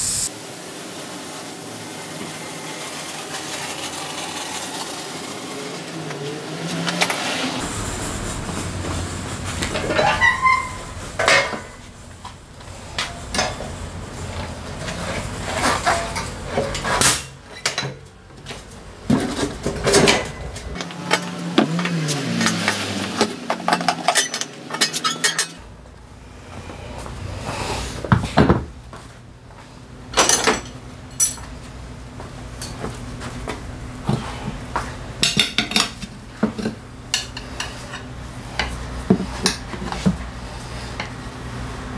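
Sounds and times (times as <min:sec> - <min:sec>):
tools clanking on metal: 0:09.6 - 0:11.8, 0:12.9 - 0:13.8, 0:14.8 - 0:25.6, 0:30.2 - 0:31.5.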